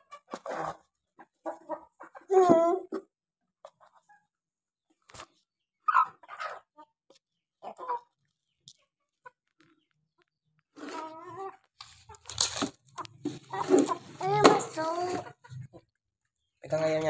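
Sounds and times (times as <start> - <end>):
chickens clucking: 0.0 - 17.0
rustling noise: 11.8 - 14.8.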